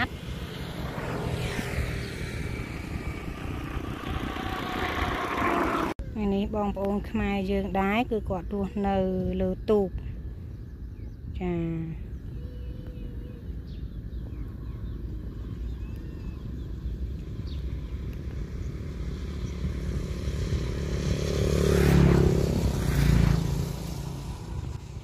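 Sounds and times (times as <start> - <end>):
small engine passing by: 0.0 - 6.0, 12.2 - 25.0.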